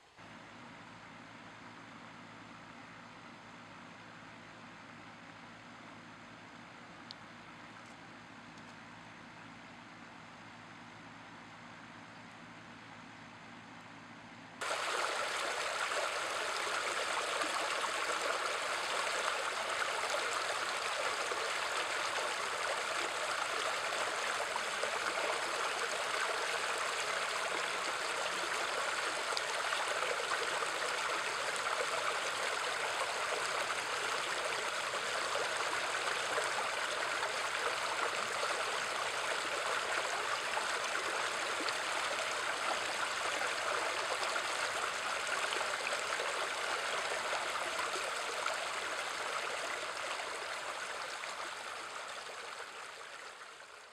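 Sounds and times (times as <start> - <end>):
creek water over stones: 14.6 - 53.9.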